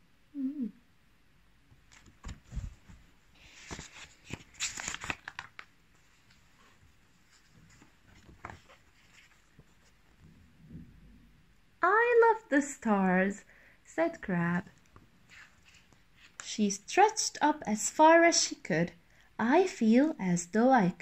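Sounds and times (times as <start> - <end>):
paper pages rustling: 1.9 - 10.3, 15.2 - 16.4.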